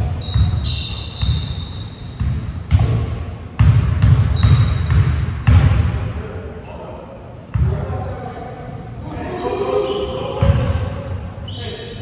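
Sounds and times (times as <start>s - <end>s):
short high squeaks: 0.2s - 2.1s, 11.1s - 11.9s
basketballs bouncing on hardwood: 3.6s - 5.8s.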